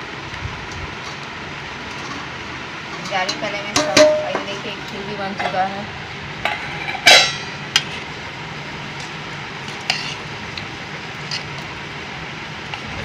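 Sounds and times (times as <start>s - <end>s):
ladle clinking against steel pot: 3.0s - 4.6s, 6.5s - 7.9s.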